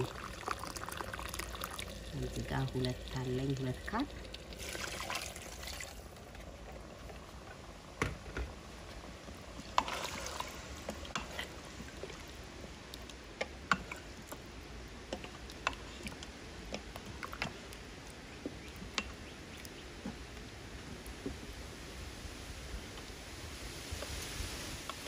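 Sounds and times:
liquid sloshing: 0:00.0 - 0:07.3, 0:09.6 - 0:14.5.

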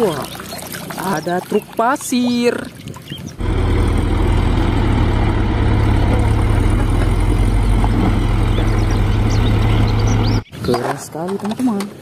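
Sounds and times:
dump truck diesel engine running: 0:03.4 - 0:10.4.

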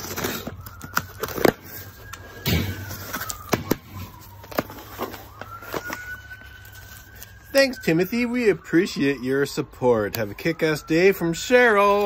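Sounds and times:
knife slitting packing tape: 0:00.0 - 0:01.8.

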